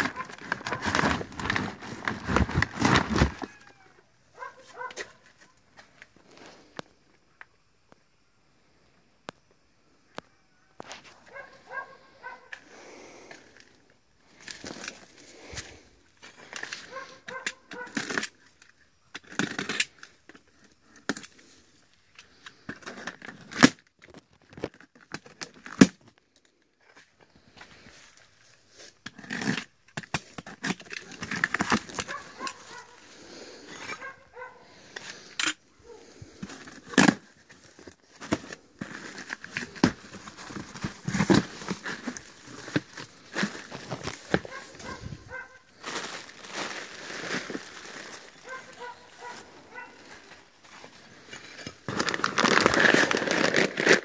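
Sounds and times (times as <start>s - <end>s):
cardboard rustling: 0.0s - 3.7s, 36.4s - 54.0s
plastic packing crinkling: 0.0s - 3.8s, 30.3s - 33.0s, 36.4s - 54.0s.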